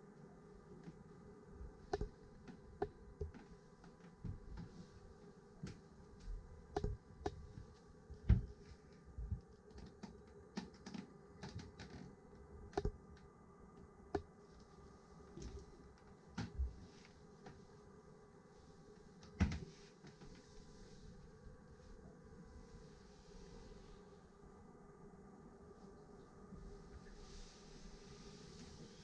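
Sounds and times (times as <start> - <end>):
faint steady hum: 0.0 - 29.0
soft footstep thumps: 1.9 - 5.0, 5.6 - 9.4.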